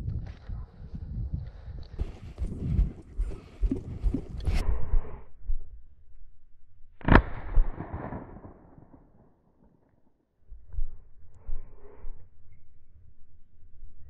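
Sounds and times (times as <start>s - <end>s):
footsteps on stony ground: 0.0s - 4.6s
shotgun shot echoing: 7.0s - 9.2s.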